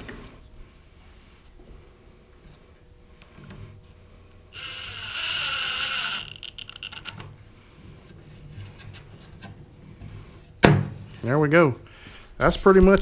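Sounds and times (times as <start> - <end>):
impact driver running: 4.6 - 7.1.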